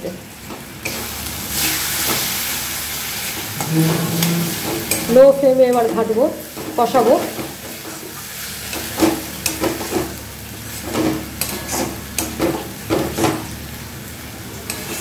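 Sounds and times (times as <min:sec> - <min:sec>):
frying sizzle: 0:00.0 - 0:15.0
metal spatula scraping metal pan: 0:03.6 - 0:06.0.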